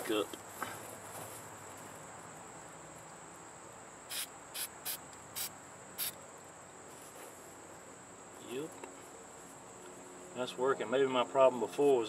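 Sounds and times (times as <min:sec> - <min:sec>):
crickets chirring: 0:00.0 - 0:12.0
spray-paint can hissing: 0:04.1 - 0:06.2.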